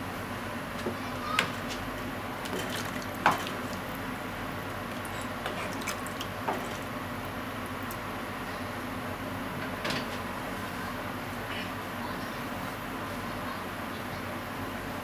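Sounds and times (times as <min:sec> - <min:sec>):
liquid sloshing in a pot: 0:01.5 - 0:04.0, 0:04.6 - 0:07.0.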